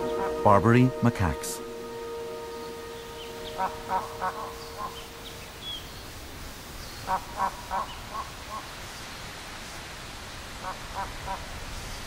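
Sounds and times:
nasal honking calls: 0:00.0 - 0:06.1, 0:07.0 - 0:08.3
small birds chirping: 0:02.4 - 0:09.9.

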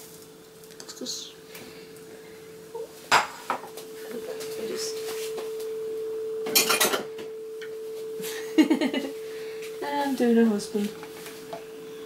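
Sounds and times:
steady hum: 0:00.0 - 0:12.0
bowls and utensils clinking: 0:06.4 - 0:07.7.

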